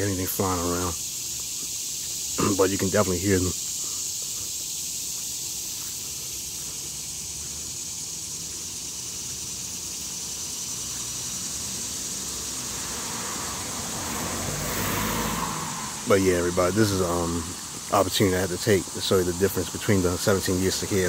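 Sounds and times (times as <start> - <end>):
cicadas buzzing: 0.0 - 21.0
road traffic hum: 0.0 - 21.0
vehicle approaching: 5.8 - 21.0.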